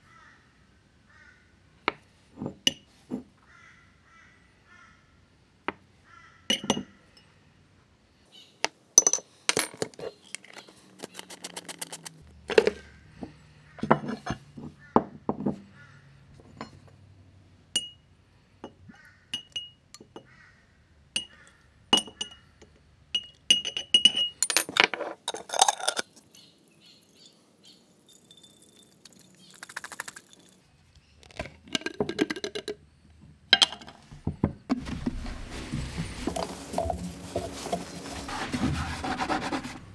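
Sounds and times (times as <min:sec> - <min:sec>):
metal objects clinking: 0:09.0 - 0:12.8, 0:23.2 - 0:26.5, 0:27.9 - 0:30.7.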